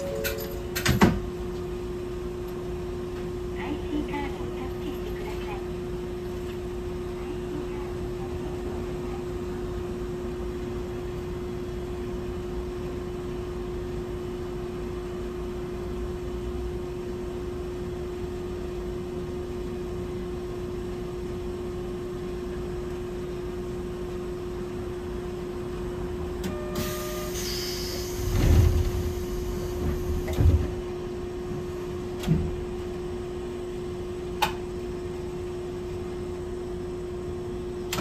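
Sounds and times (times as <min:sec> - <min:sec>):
brief higher tone: 0:00.0 - 0:00.8
tram interior hum: 0:00.0 - 0:38.0.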